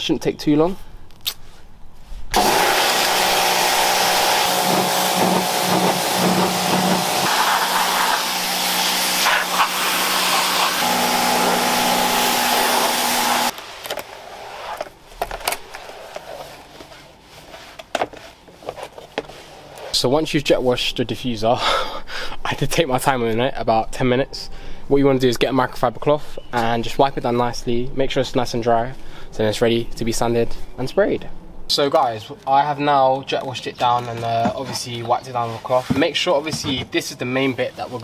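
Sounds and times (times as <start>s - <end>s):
pressure washer pump humming: 2.4s - 13.6s
water jet hissing on plastic: 2.4s - 13.6s.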